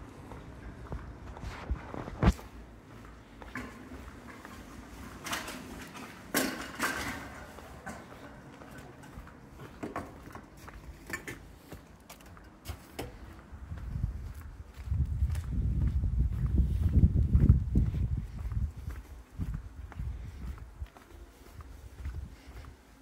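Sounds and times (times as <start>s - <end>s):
footsteps on pavement: 0.1s - 23.0s.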